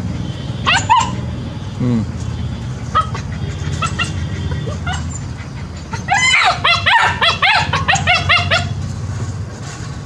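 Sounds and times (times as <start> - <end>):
puppies yapping: 0.5 - 1.6, 2.5 - 8.9.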